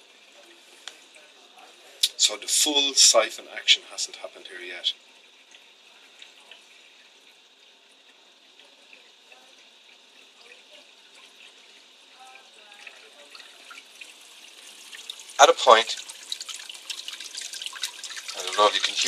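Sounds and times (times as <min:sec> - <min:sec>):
water running and trickling: 0:00.0 - 0:19.0
water dripping: 0:04.9 - 0:19.0.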